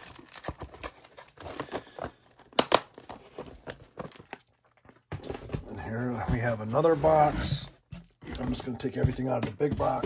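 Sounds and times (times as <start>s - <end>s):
packaging crinkling: 0.0s - 5.0s.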